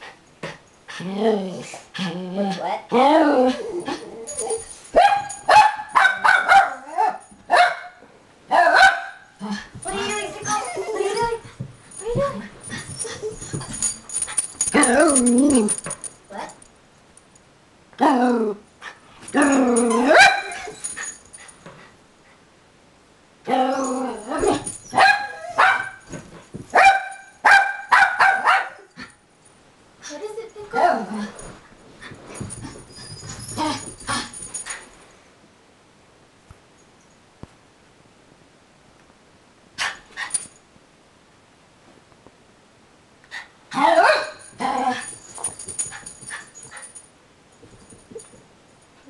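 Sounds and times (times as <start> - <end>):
small dog barking: 5.0 - 9.2, 25.0 - 26.0, 26.7 - 28.9, 43.8 - 44.4.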